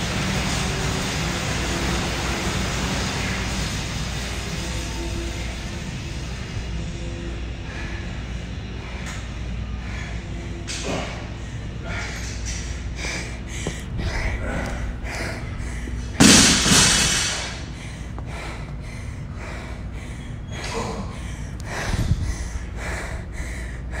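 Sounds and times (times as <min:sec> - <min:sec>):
person panting: 0:07.6 - 0:16.2, 0:17.4 - 0:24.0.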